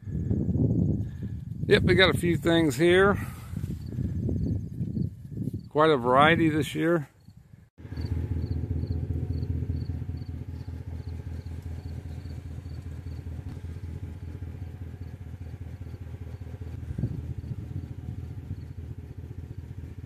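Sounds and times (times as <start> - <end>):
small engine running at low speed: 7.8 - 20.0.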